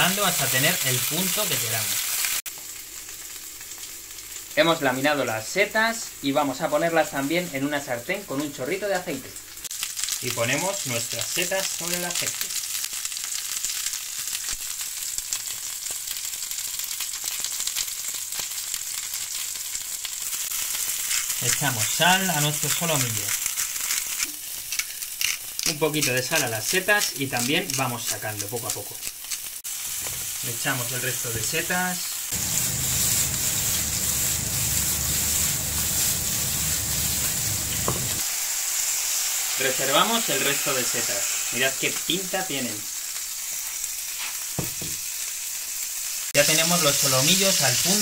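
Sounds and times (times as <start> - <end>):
oil sizzling in a frying pan: 0.0 - 48.0
steady low rumble: 32.4 - 38.2.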